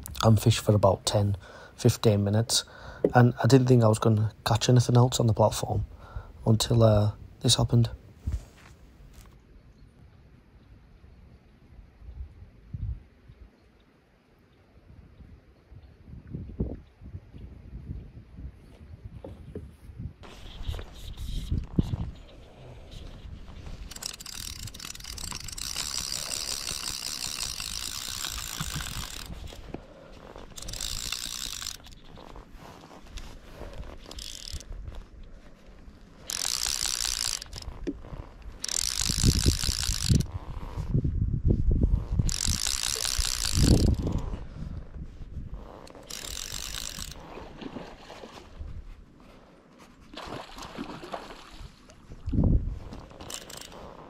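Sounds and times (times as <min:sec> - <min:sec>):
fly reel ratchet buzzing: 0:23.6 - 0:29.6, 0:30.2 - 0:32.2, 0:33.9 - 0:34.7, 0:36.2 - 0:40.3, 0:42.1 - 0:44.3, 0:45.8 - 0:47.2, 0:53.2 - 0:53.8.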